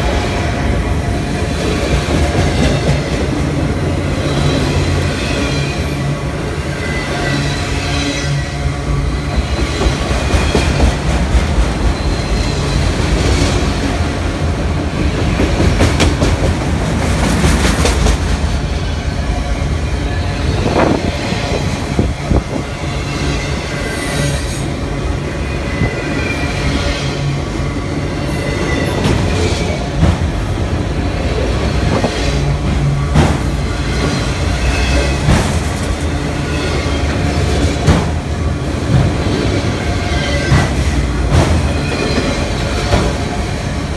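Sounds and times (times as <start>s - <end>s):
steel wheels rumbling on rails: 0.0s - 43.9s
clacks at rail joints: 15.3s - 18.4s, 31.9s - 34.2s, 34.9s - 36.2s, 40.5s - 43.3s.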